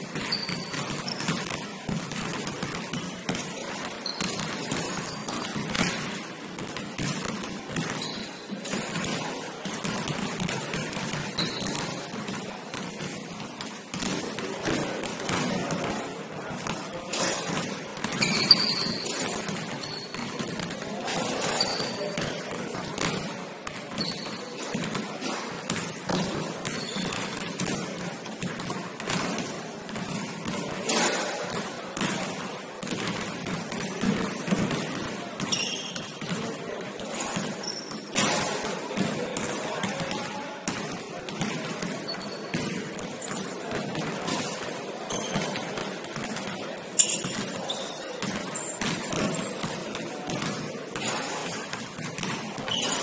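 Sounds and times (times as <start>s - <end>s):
basketball bouncing on court: 0.0s - 53.0s
sneakers squeaking: 0.0s - 53.0s.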